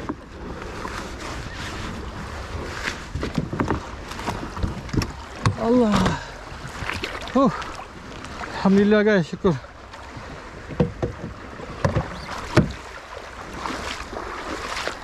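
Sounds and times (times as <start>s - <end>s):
wind on microphone: 0.0s - 8.6s
water sloshing around kayak: 0.0s - 15.0s
sharp knocks and clatter: 10.7s - 12.8s.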